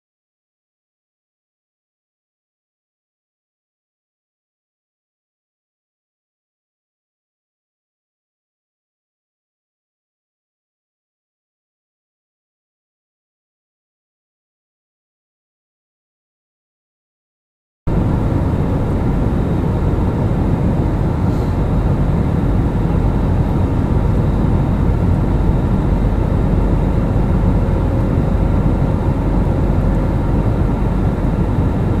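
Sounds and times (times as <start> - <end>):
airliner cabin engine noise: 17.9 - 32.0.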